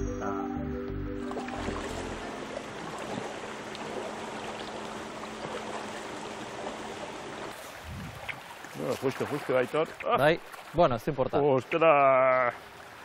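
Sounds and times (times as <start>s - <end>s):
background music: 0.0s - 2.8s
river water rushing: 1.2s - 10.8s.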